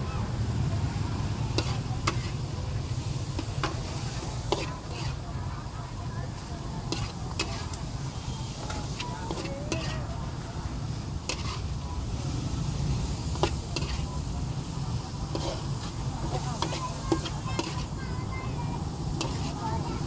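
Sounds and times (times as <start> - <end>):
food sizzling: 0.0 - 20.0
metal spatula scraping a wok: 1.5 - 5.5, 6.3 - 11.9, 12.6 - 18.1, 19.1 - 19.8.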